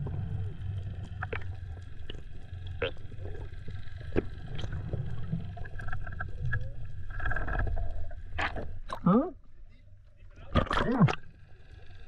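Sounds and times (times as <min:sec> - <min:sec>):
outboard motor droning: 0:00.0 - 0:07.6.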